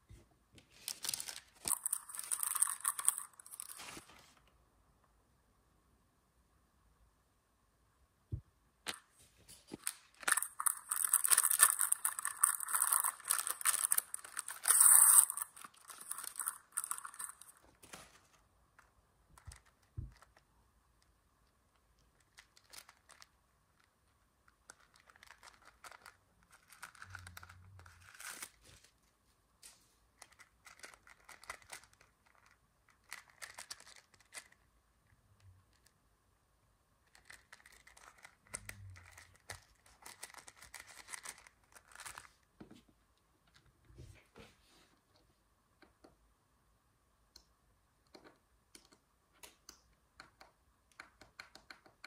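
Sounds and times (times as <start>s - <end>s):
toy handbag rustling: 9.5s - 18.3s, 24.8s - 28.9s, 37.1s - 42.4s.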